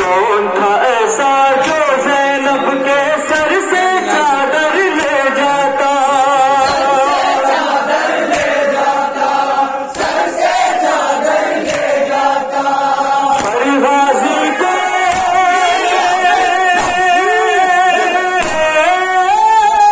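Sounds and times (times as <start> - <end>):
man singing lament into microphone: 0.0 - 7.2, 13.1 - 19.9
crowd of men chanting: 0.0 - 19.9
hands slapping chests: 1.6 - 2.1, 3.3 - 3.7, 4.9 - 5.5, 6.6 - 8.9, 9.9 - 13.8, 15.0 - 15.6, 16.5 - 17.2, 18.4 - 18.7.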